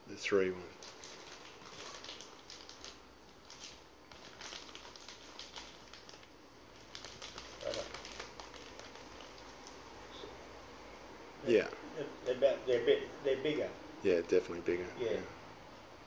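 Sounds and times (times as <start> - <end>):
plastic bags crinkling: 0.7 - 9.9.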